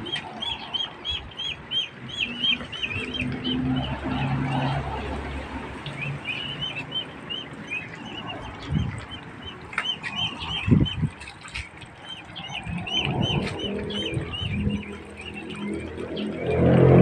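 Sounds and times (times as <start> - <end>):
ducklings peeping: 0.0 - 17.0.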